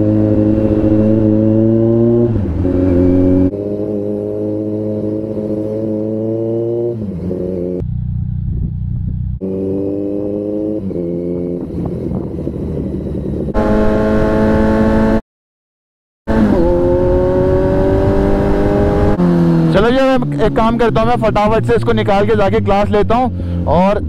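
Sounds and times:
road and wind rumble: 0.0s - 15.2s, 16.3s - 24.0s
motorcycle engine running: 6.2s - 15.2s.

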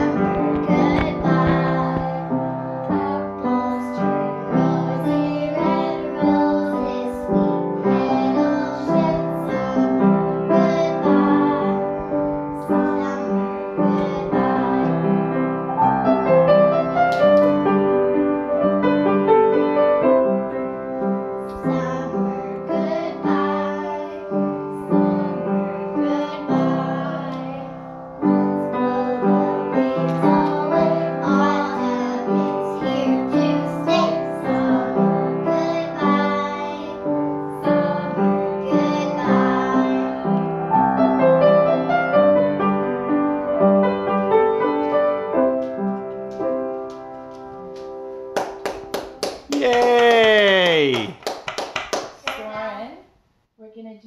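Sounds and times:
young children singing: 0.0s - 17.9s, 21.4s - 41.9s
piano accompaniment: 0.0s - 51.9s.

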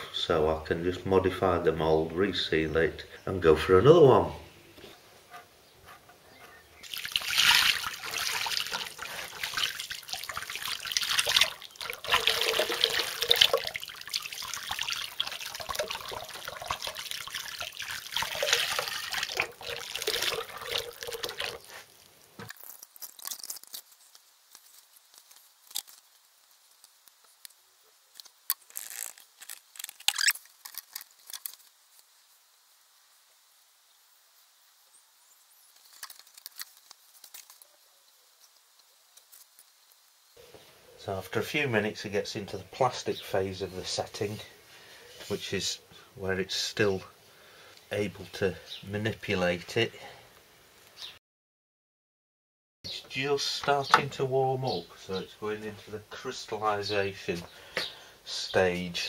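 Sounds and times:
plaster slurry pouring and splashing: 6.8s - 23.8s.

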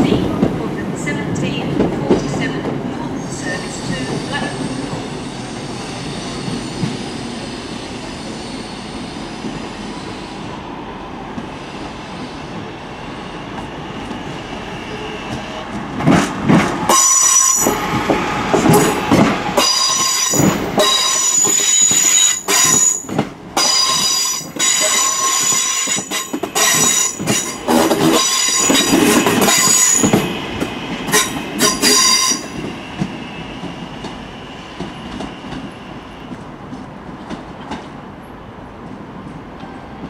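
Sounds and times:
train rumble: 0.0s - 40.0s
train wheels squealing: 3.2s - 10.6s, 18.7s - 36.3s.

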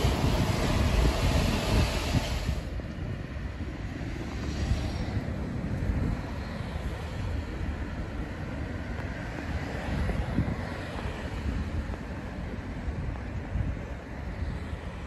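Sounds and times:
outdoor hiss: 0.0s - 2.7s
wind buffeting microphone: 0.0s - 15.0s.

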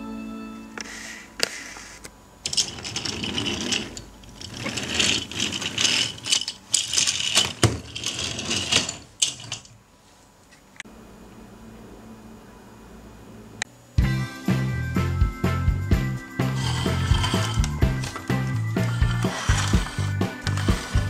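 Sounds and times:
plastic toy pieces rattling and clicking: 2.4s - 9.7s, 16.6s - 21.0s.

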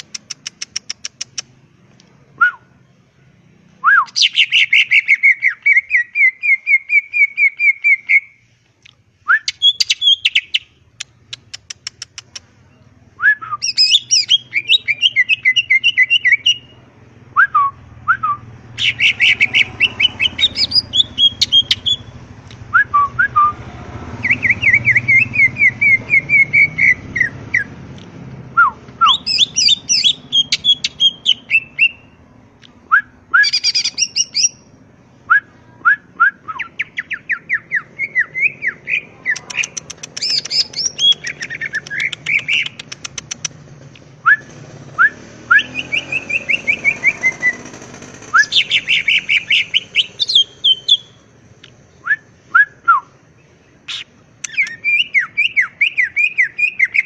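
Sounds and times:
bird singing rapid high notes: 3.8s - 8.4s, 9.3s - 16.8s, 17.5s - 23.5s, 24.1s - 27.8s, 29.0s - 32.3s, 33.0s - 34.8s, 36.5s - 43.6s, 44.2s - 57.0s
short sharp bird whistles: 39.5s - 43.5s.

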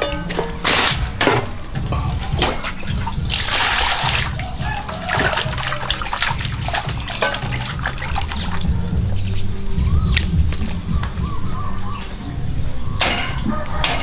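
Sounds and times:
water splashing in metal basin: 0.0s - 9.3s
background music: 0.0s - 14.0s.

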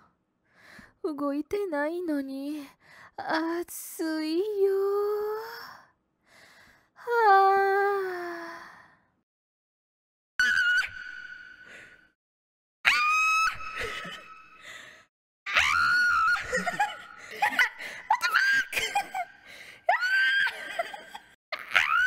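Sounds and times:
woman squealing: 10.4s - 11.6s, 12.9s - 14.3s, 15.5s - 17.0s, 19.9s - 20.8s, 21.6s - 22.0s.

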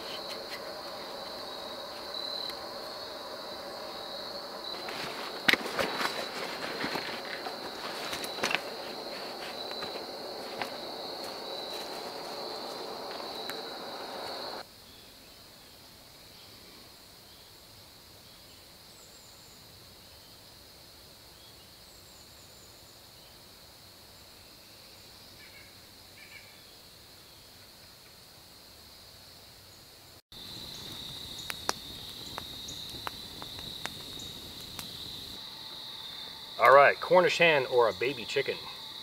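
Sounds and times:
campfire crackling and popping: 0.0s - 14.6s, 30.4s - 38.6s
insect chorus: 0.0s - 39.0s.

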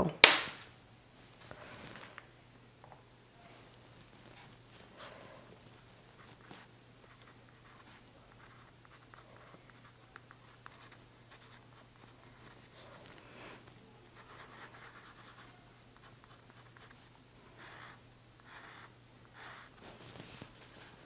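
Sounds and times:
pen scratching on paper: 6.2s - 12.9s, 14.2s - 19.7s.

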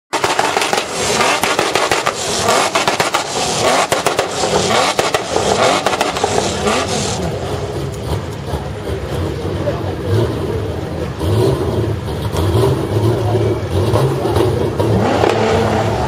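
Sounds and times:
exhaust crackles and pops: 0.1s - 9.1s
truck engine revving: 0.1s - 16.0s.

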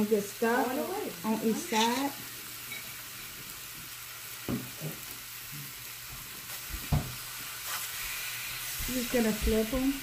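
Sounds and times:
fish sizzling in skillet: 0.0s - 10.0s
spatula scraping pan: 1.4s - 3.0s.

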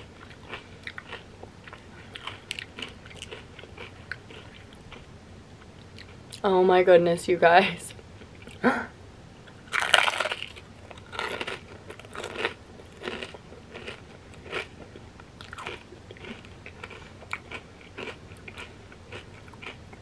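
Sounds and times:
chewing with crunches: 0.0s - 5.1s, 9.7s - 20.0s
crunching chip: 9.7s - 14.7s, 15.4s - 19.8s.

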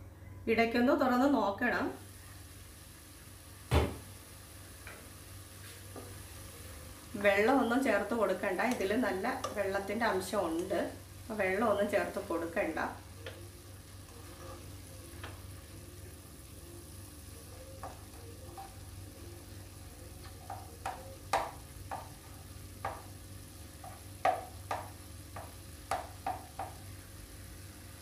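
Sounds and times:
faint sizzle of vegetables: 0.0s - 28.0s
spatula scraping a pan: 14.0s - 15.4s, 17.7s - 19.3s.

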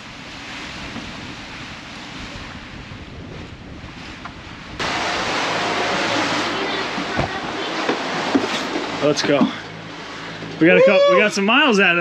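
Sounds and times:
wind buffeting microphone: 0.0s - 11.1s
wind and rough sea rushing: 0.0s - 12.0s.

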